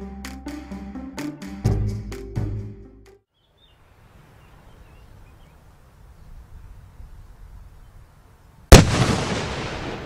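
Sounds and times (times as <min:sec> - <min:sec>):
faint bird chirps: 0:03.3 - 0:08.5
explosive charge blast: 0:08.7 - 0:10.0.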